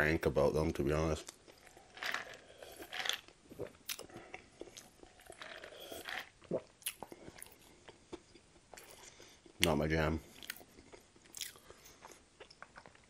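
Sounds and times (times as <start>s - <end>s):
person gulping: 1.6s - 8.0s.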